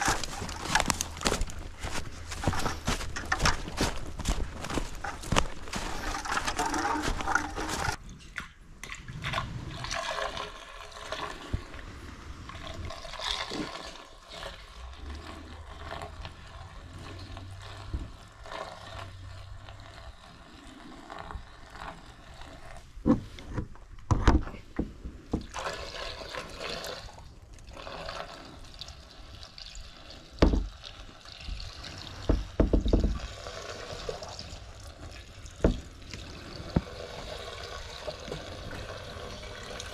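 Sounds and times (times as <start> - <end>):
footsteps: 0.0 - 8.0, 32.2 - 33.2
sap trickling into plastic tank: 0.0 - 14.1
plastic containers knocking: 2.5 - 8.0, 30.4 - 30.7, 32.2 - 33.2.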